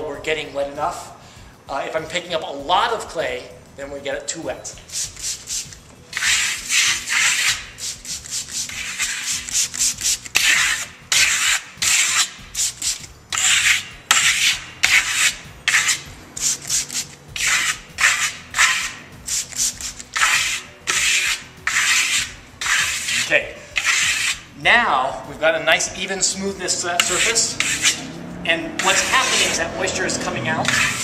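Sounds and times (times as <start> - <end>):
steel trowel scraping clay plaster: 4.9 - 24.6, 26.0 - 31.0.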